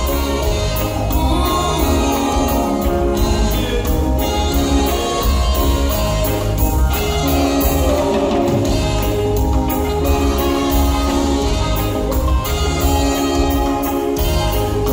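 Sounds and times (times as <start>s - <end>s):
lead singer singing: 0.0s - 6.2s, 7.3s - 9.2s
horn section: 0.0s - 14.9s
live reggae band playing: 0.0s - 14.9s.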